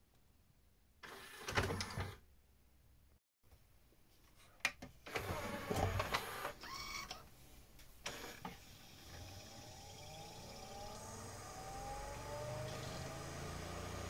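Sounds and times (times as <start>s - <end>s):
mechanical clicks and whirs: 5.1s - 7.3s, 8.0s - 13.6s
disc spinning up whine: 8.1s - 14.0s.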